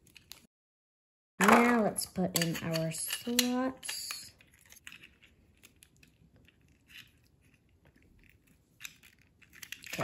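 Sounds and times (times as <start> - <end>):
plastic toy parts clicking: 1.4 - 7.3, 8.7 - 10.0.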